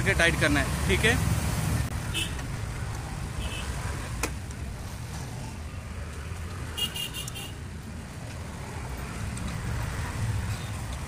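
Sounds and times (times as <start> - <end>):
road traffic rumble: 0.0 - 11.0
vehicle horn high beeps: 6.8 - 7.6.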